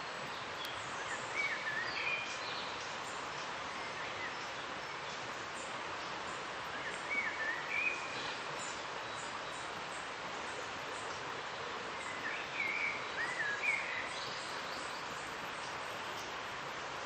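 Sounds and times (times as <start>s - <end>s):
river rushing: 0.0s - 17.0s.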